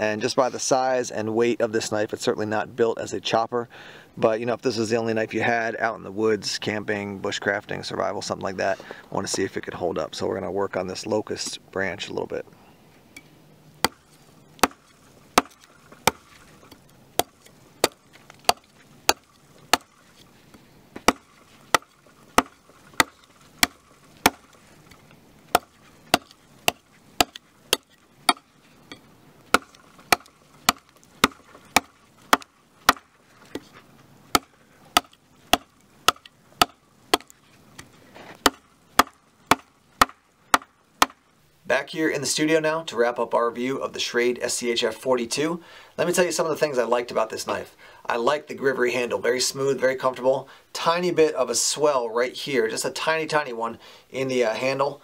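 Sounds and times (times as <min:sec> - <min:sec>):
knife chopping into branch: 0:13.8 - 0:20.0, 0:21.0 - 0:24.6, 0:25.5 - 0:28.5, 0:29.5 - 0:33.7, 0:34.3 - 0:37.4, 0:38.3 - 0:41.2.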